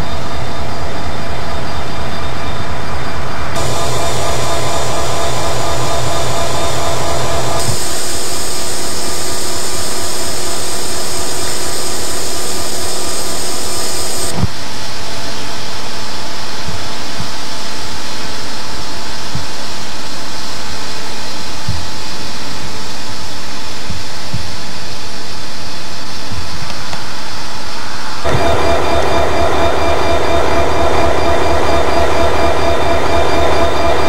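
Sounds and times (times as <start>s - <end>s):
bright hiss: 3.6s - 14.3s
diesel locomotives idling: 3.6s - 14.3s.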